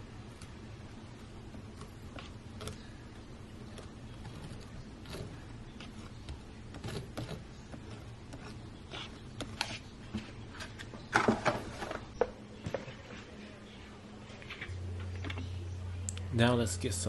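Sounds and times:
butter knife scraping and tapping: 0:03.7 - 0:10.8.

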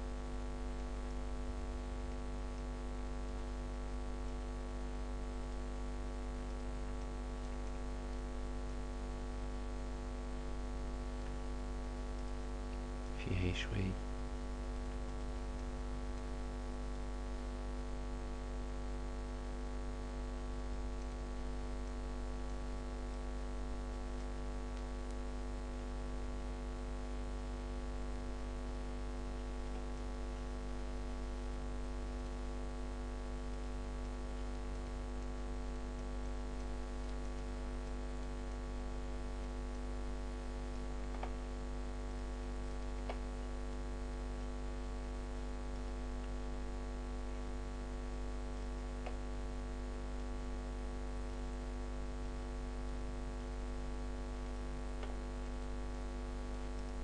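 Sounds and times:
electrical mains hum: 0:00.0 - 0:57.0
faint clicks: 0:41.0 - 0:41.5, 0:42.8 - 0:43.3.

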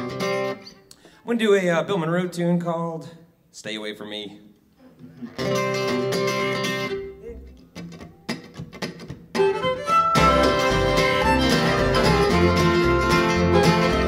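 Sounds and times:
acoustic guitars: 0:00.0 - 0:01.2, 0:04.8 - 0:14.0
upright bass: 0:05.4 - 0:08.3, 0:10.2 - 0:14.0
fiddle: 0:09.4 - 0:14.0.

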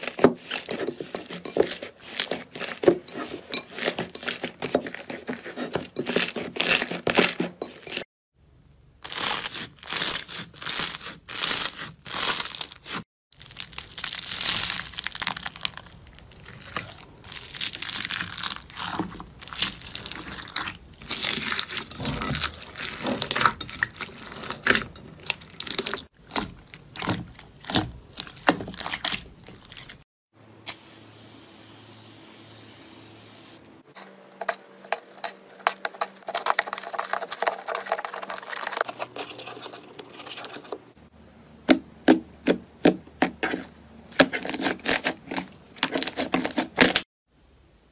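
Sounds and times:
foam beads crunching: 0:09.0 - 0:26.0
slime squishing: 0:09.1 - 0:30.0, 0:42.4 - 0:47.0.

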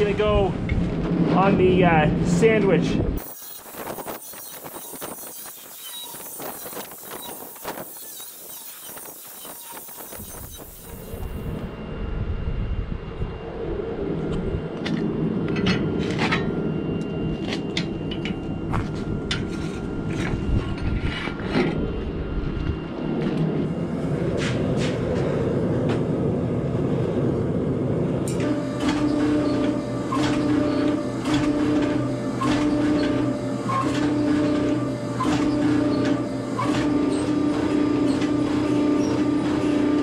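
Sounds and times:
steady low rumble: 0:00.0 - 0:03.2, 0:10.9 - 0:28.3
pulsing hum: 0:03.0 - 0:30.1.

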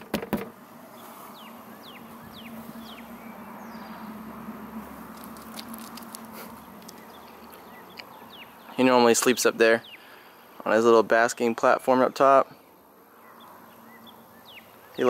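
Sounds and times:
bird chirps: 0:01.0 - 0:04.3, 0:06.4 - 0:10.2, 0:12.6 - 0:15.0.

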